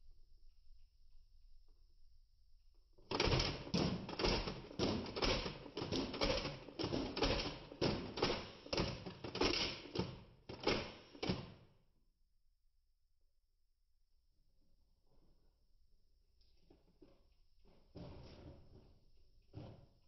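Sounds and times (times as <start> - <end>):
toy blaster clacks and spring snaps: 3.1 - 11.6.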